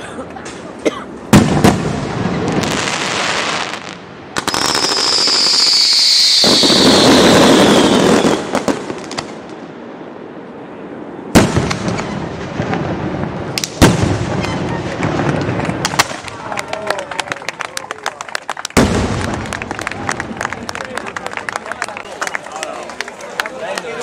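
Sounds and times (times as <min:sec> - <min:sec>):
fireworks crackling: 0:01.3 - 0:09.6, 0:11.3 - 0:17.3, 0:18.6 - 0:22.1
fireworks bangs: 0:01.3 - 0:09.7, 0:11.3 - 0:16.5, 0:18.8 - 0:20.8
firework whistle: 0:04.4 - 0:08.7.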